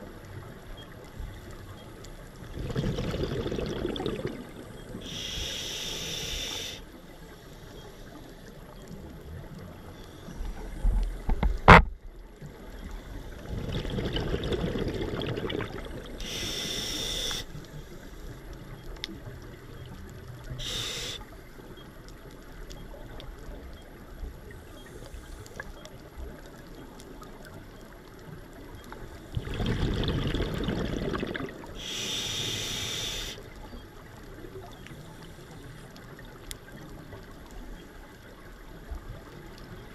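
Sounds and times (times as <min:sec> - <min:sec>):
bubbling exhale underwater: 0:02.5 - 0:05.2, 0:13.4 - 0:16.5, 0:29.3 - 0:32.1
regulator hissing inhale: 0:05.0 - 0:08.4, 0:16.2 - 0:18.4, 0:20.6 - 0:21.3, 0:31.8 - 0:33.5.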